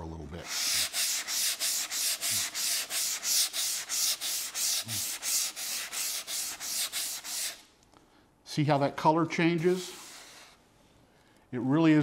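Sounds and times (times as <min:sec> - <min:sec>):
sandpaper rubbing back and forth: 0:00.4 - 0:07.7, 0:08.7 - 0:10.6.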